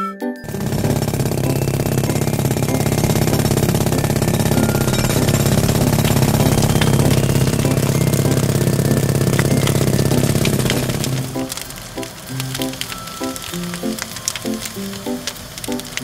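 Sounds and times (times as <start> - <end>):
machine engine mechanical chatter: 0.5 - 16.0.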